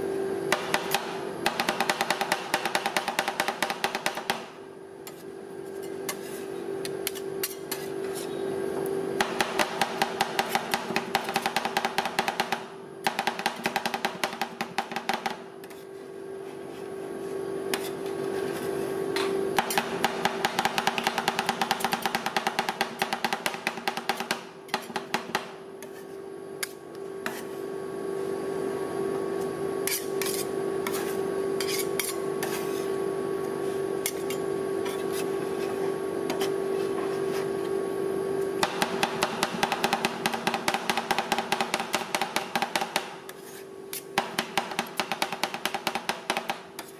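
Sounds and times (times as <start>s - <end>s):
steady machine hum: 0.0s - 46.9s.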